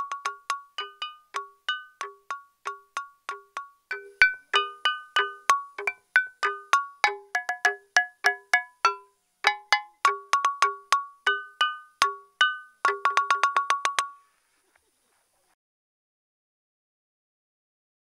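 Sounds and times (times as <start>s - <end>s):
stone lithophone melody: 0.0s - 14.2s.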